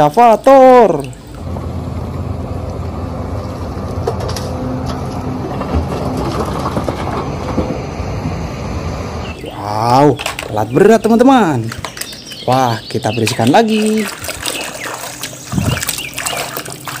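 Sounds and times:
excavator diesel engine running: 1.4 - 9.7.

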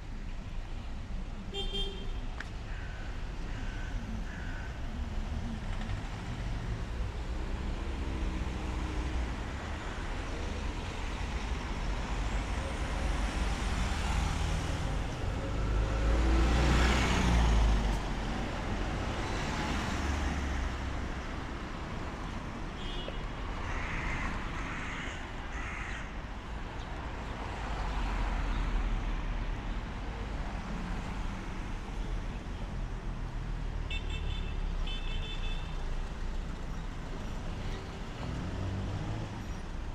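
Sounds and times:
street traffic passing: 0.0 - 39.9.

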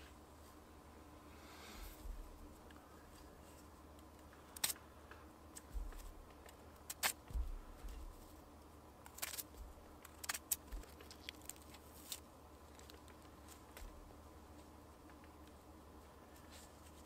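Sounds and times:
soft handling sounds: 0.0 - 17.0.

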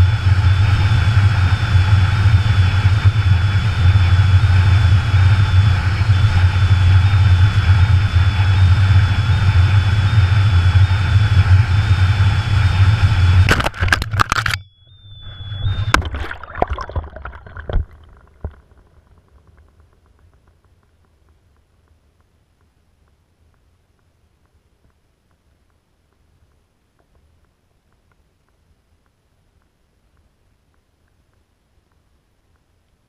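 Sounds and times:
wind rushing over camera: 0.0 - 32.7
crackling hits: 13.4 - 14.6.

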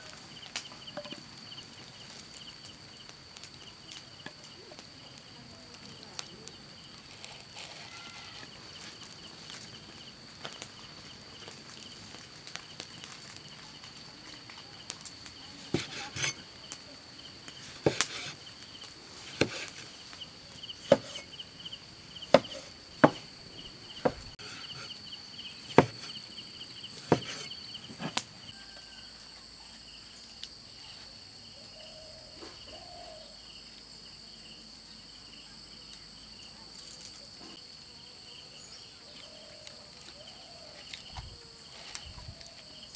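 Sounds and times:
insects chirping: 0.0 - 42.9
knife chopping on wooden board: 15.7 - 16.4, 17.8 - 18.4, 19.3 - 19.8, 20.9 - 21.3, 22.3 - 23.3, 24.0 - 24.9, 25.7 - 26.2, 27.0 - 28.2.

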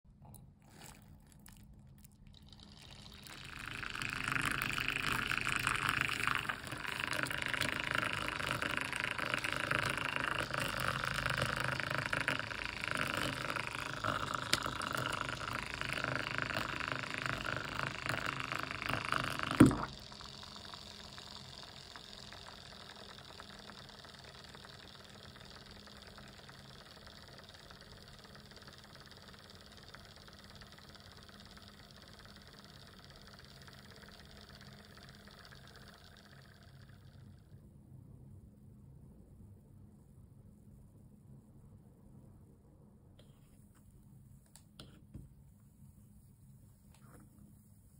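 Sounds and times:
hot water pouring into mug: 0.3 - 27.2
small motor humming: 2.3 - 37.6.

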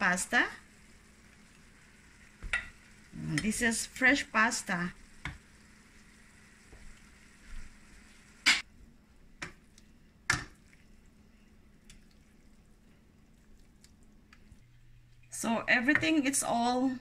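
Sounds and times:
pasta stirred in frying pan: 0.0 - 8.5
faint sizzle: 0.0 - 17.0.

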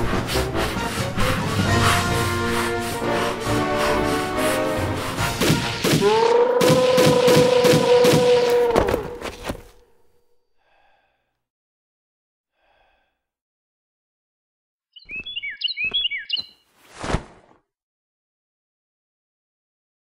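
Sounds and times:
rapid gunfire: 5.2 - 6.0, 6.6 - 8.5
bird chirps: 14.9 - 16.7.

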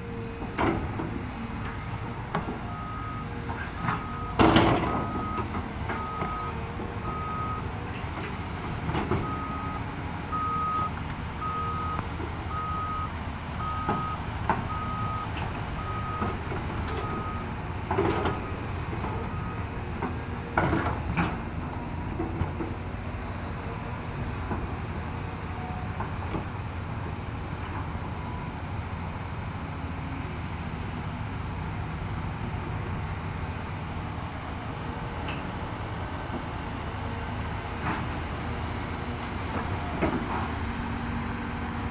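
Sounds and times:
excavator diesel engine under load: 0.0 - 41.9
reversing alarm beeping: 2.7 - 4.4, 5.0 - 7.7, 9.2 - 17.5.

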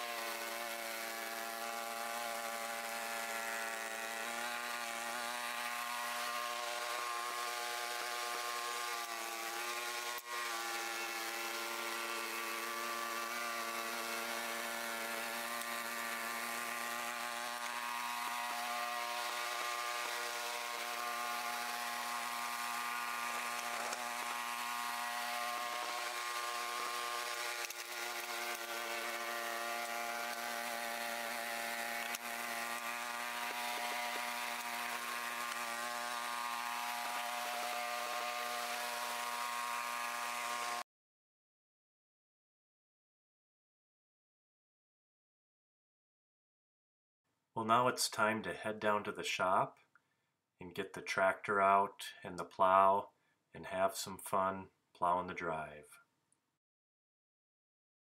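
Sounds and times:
snowblower engine running: 0.0 - 40.8.

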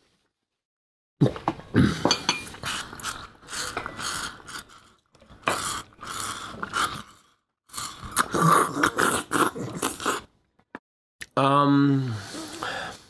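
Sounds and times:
person slurping milk: 1.7 - 10.3.

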